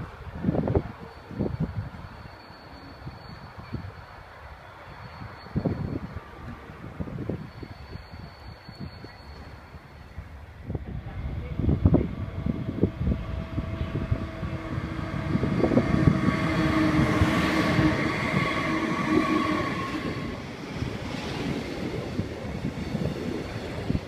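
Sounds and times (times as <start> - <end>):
electric locomotive hum: 0.0 - 24.0.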